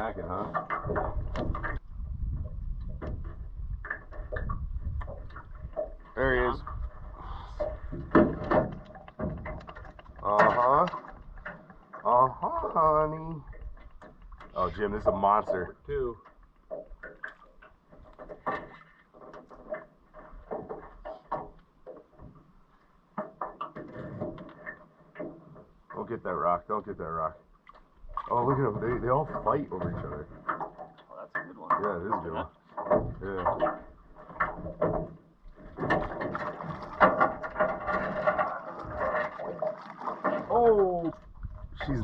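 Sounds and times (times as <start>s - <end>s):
fishing gear rattling in metal boat: 0.0s - 42.0s
water splashing: 27.4s - 42.0s.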